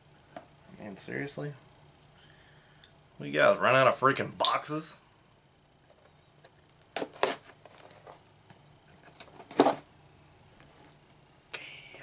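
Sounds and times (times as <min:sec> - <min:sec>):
cardboard ripping: 0:07.0 - 0:07.6.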